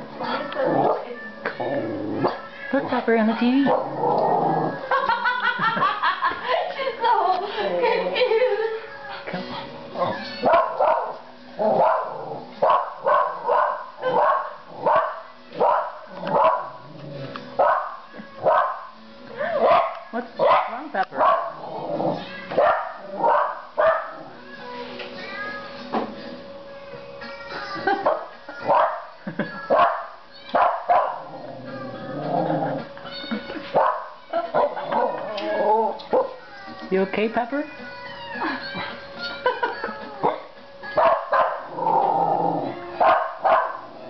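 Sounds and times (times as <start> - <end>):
christmas music from tv: 0.0 - 44.0
cats meowing on tv: 0.2 - 2.9, 18.0 - 19.0, 21.9 - 23.2, 24.1 - 25.9, 29.6 - 33.5, 37.6 - 38.7
small dog barking: 10.5 - 11.2, 11.8 - 16.7, 17.6 - 18.8, 19.6 - 21.6, 22.6 - 24.2, 29.7 - 31.3, 41.0 - 41.6, 43.0 - 43.8.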